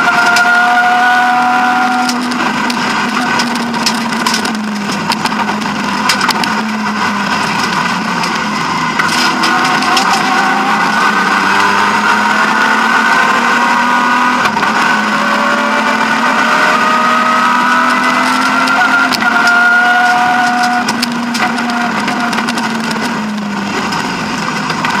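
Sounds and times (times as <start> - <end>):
car engine from inside cabin: 0.0 - 25.0
sharp clicks and knocks: 1.8 - 10.5, 17.8 - 25.0.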